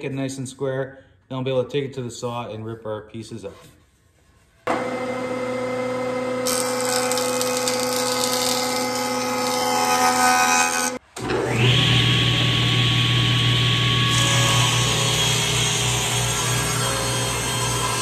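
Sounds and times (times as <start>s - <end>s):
jointer machine hum: 4.7s - 18.0s
table saw ripping wood: 4.7s - 18.0s.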